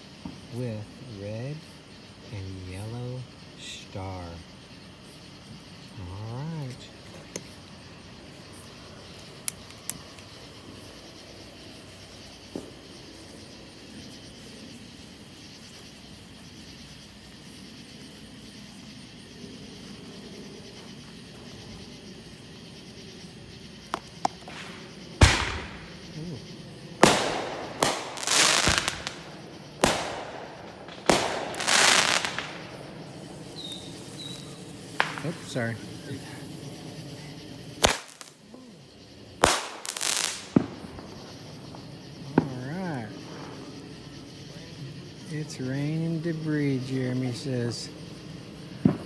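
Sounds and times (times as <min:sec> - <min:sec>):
fireworks bangs echoing: 0:23.9 - 0:35.6, 0:37.8 - 0:38.3, 0:39.4 - 0:41.3.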